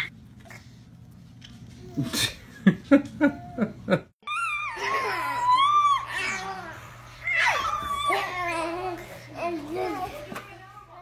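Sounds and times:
baby squealing high-pitched: 0:04.2 - 0:08.8.

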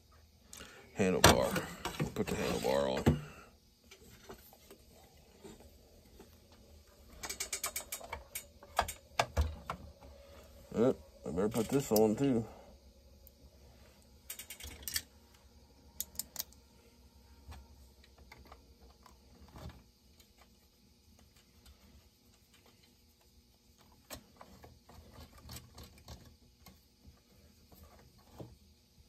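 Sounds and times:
clicks of parts handled: 0:16.0 - 0:16.6.

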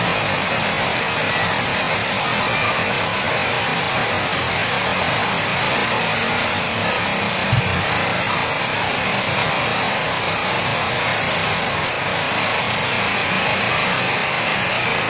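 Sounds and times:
steady rain hiss: 0:00.0 - 0:15.0
low thump: 0:07.5 - 0:07.9.

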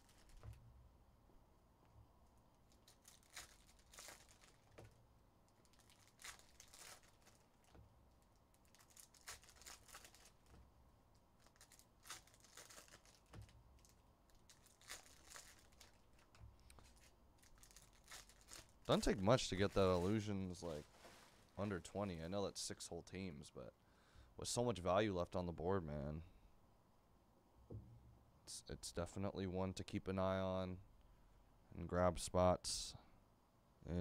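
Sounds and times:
trading cards rustling: 0:00.0 - 0:00.5, 0:02.7 - 0:05.0, 0:05.6 - 0:07.7, 0:08.5 - 0:10.6, 0:11.4 - 0:21.6.

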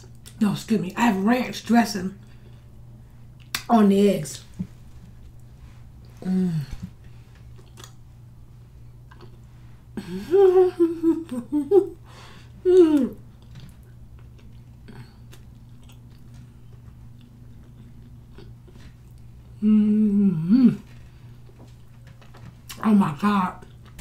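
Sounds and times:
low room hum: 0:00.0 - 0:24.0
woman humming with mouth full: 0:06.2 - 0:07.0, 0:10.0 - 0:11.7, 0:12.6 - 0:13.2, 0:19.5 - 0:20.9
faint chewing clicks: 0:07.4 - 0:08.0, 0:09.0 - 0:09.5, 0:13.0 - 0:19.6.

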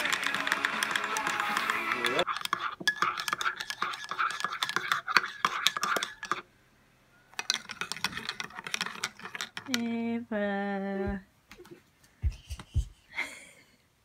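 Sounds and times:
teaspoon clinking in mug: 0:00.1 - 0:06.4, 0:07.4 - 0:09.8.

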